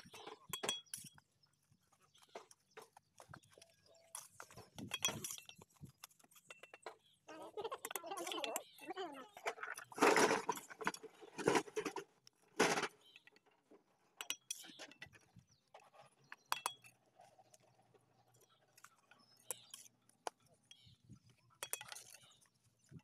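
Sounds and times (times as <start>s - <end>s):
bricks clinking together: 4.1s - 7.0s.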